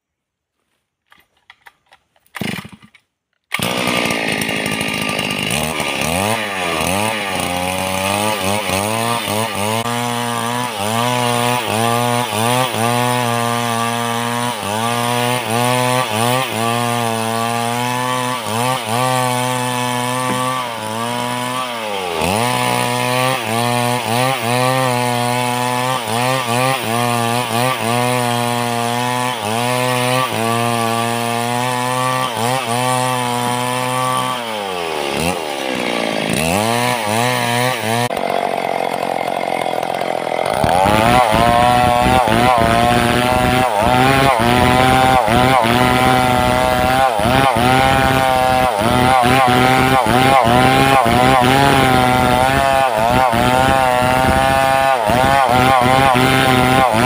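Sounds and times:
chainsaw cutting log: 1.1s - 57.0s.

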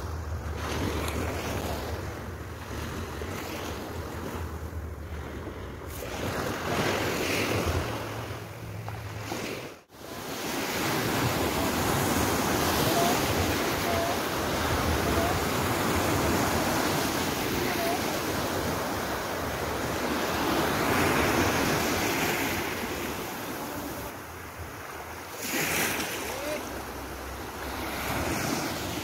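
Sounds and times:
sea waves washing in shallows: 0.0s - 29.0s.

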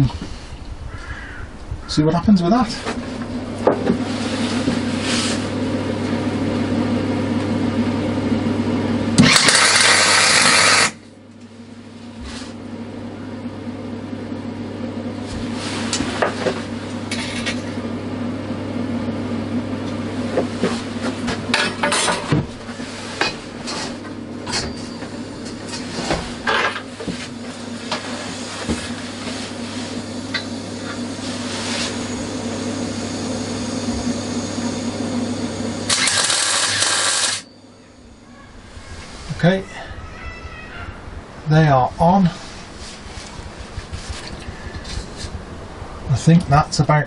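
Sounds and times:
electric welder humming: 3.0s - 12.0s, 14.0s - 39.4s
welding crackle: 9.4s - 11.0s, 35.9s - 37.4s.

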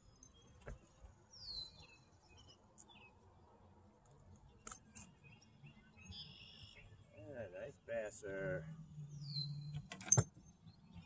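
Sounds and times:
faint bird chirps: 4.4s - 11.0s.

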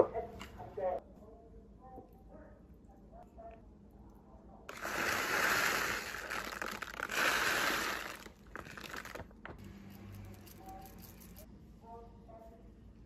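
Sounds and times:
plastic bag crinkling: 4.7s - 9.5s.

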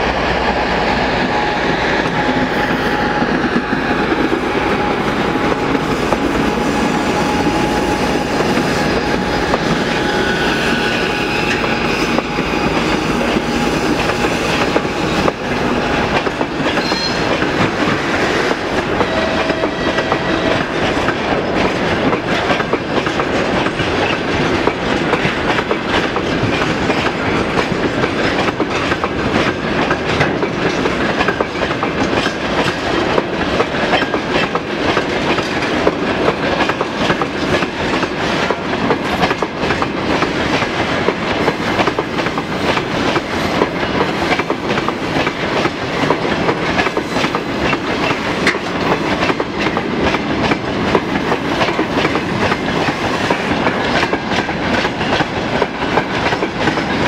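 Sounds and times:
train wheels clacking over rail joints: 1.1s - 57.0s.

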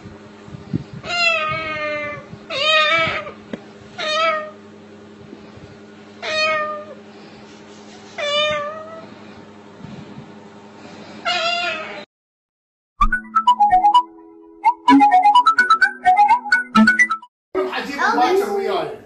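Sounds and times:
cockatoo imitating cat meows: 1.0s - 3.4s, 11.3s - 12.0s.

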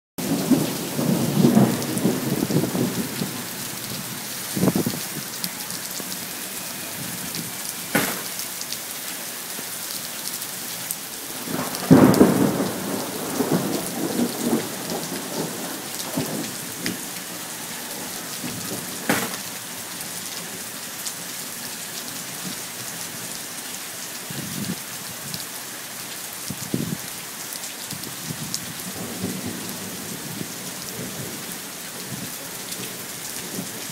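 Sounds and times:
thunder cracks and rumbles: 0.2s - 5.3s, 11.3s - 17.2s, 28.4s - 32.8s
steady rain falling: 0.2s - 33.9s.

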